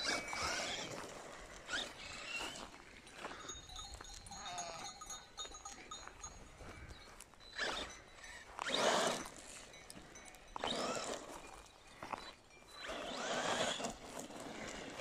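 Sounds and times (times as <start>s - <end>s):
rc car accelerating over gravel: 0.0s - 2.8s, 7.5s - 9.6s, 10.6s - 15.0s
sheep bells tinkling: 0.0s - 15.0s.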